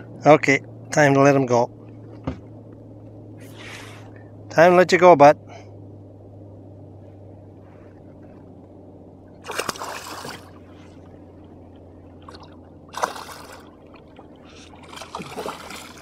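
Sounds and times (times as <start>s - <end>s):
steady low hum: 0.0s - 16.0s
fish splashing in water: 9.4s - 11.2s, 12.2s - 16.0s.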